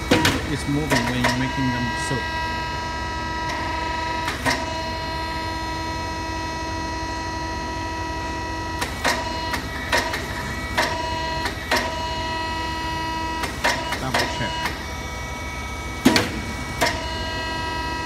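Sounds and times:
short sharp machine noises: 0.0 - 6.7, 8.1 - 15.0
machine whine: 0.0 - 18.0.

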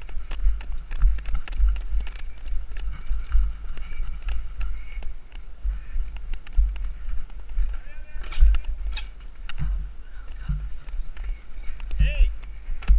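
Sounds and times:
bike chain and frame rattling: 0.0 - 9.7
wind buffeting microphone: 0.0 - 12.9.

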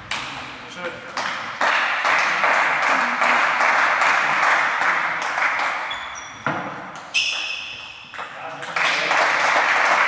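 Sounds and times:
spectators applauding: 1.6 - 5.8, 8.7 - 10.0.

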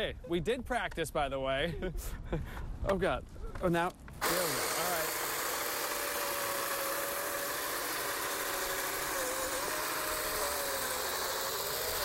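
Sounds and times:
electric chainsaw cutting ice: 4.2 - 12.0.

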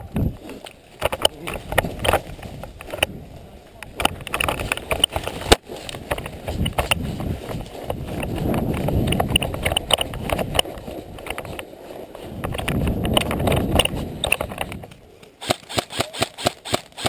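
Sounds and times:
wind rumble on microphone: 0.0 - 15.1
camera handling noise: 0.1 - 3.1, 3.9 - 11.7, 12.4 - 16.8
gear rattling clicks: 3.9 - 7.3, 7.9 - 11.7, 12.4 - 15.0.

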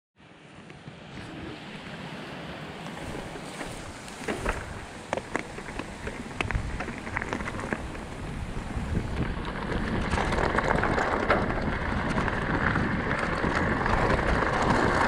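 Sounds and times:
bike tyre rumble: 0.5 - 15.0
wind noise: 0.8 - 15.0
bike parts rattling: 3.4 - 15.0.

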